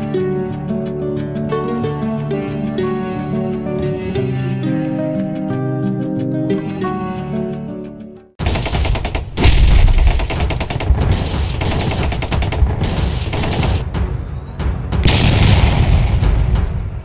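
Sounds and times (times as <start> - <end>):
gentle guitar music: 0.0 - 8.4
rapid crackling bangs: 8.4 - 14.1, 15.0 - 17.0.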